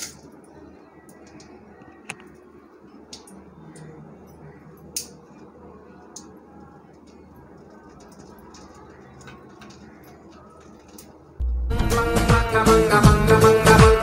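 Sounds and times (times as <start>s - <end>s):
seeds crackling in hot oil: 6.0s - 11.2s.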